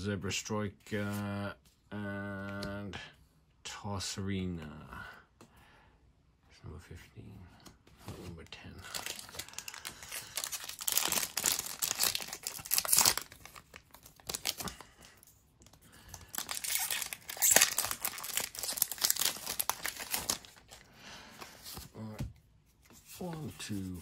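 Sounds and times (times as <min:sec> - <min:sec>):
foil wrapper crinkling: 0:08.9 - 0:15.1, 0:16.0 - 0:20.8
foil pack tearing open: 0:09.0 - 0:14.8, 0:16.2 - 0:20.6.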